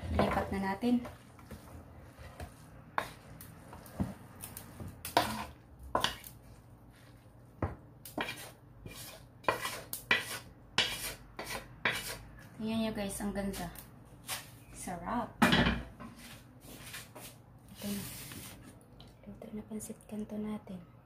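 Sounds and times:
wooden spatula scraping wok: 0.0s - 7.3s, 8.1s - 12.3s, 13.4s - 14.6s, 15.8s - 18.8s.

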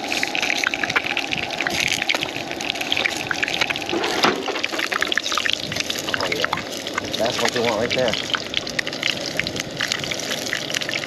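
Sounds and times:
fish frying in hot oil: 0.0s - 11.0s
pan knocking on grate: 3.9s - 5.2s.

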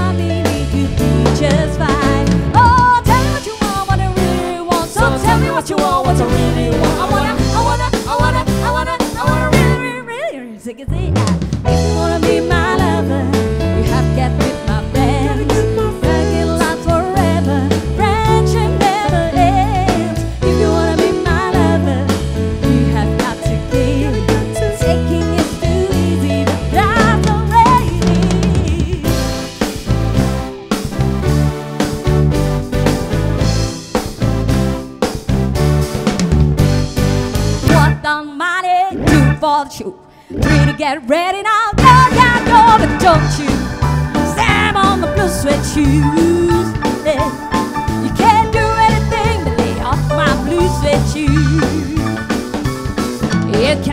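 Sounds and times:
woman singing lead: 0.0s - 29.6s, 37.6s - 52.4s, 53.4s - 53.9s
pop soul band playing: 0.0s - 53.9s.

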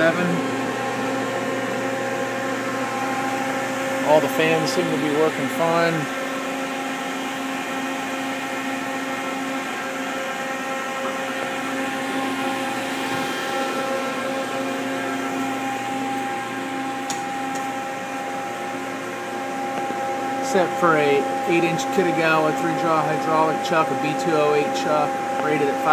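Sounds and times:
cooling fans humming: 0.0s - 25.9s.

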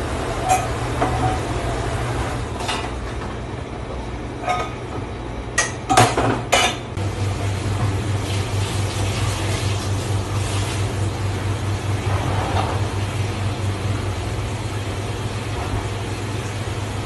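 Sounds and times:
low machine hum: 0.0s - 17.0s
metal pots and bowls clanking: 0.4s - 1.4s.

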